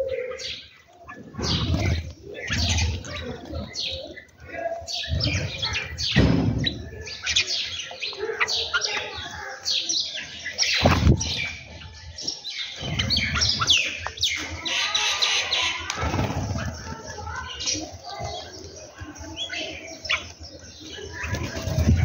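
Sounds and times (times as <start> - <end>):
birds chirping and calling: 0.0 - 22.0
wing flaps: 15.9 - 17.1.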